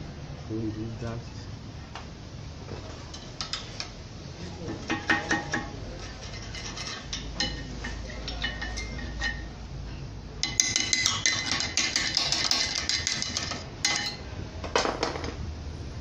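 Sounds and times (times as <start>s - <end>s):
screwdriver scraping metal: 6.0s - 9.4s.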